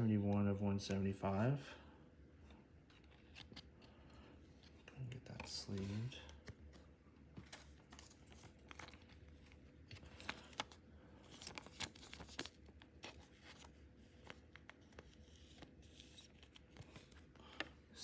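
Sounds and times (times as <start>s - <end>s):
plastic sleeve rustling: 4.6s - 17.6s.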